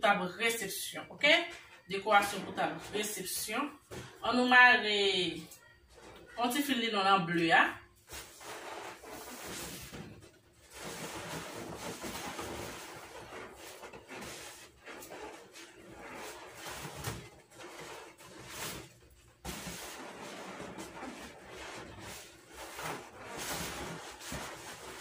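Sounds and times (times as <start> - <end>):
balloons rustling and rubbing: 7.8 - 25.0.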